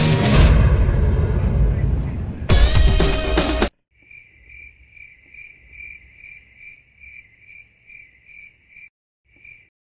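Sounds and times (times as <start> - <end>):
cricket chirping: 4.0 - 9.7.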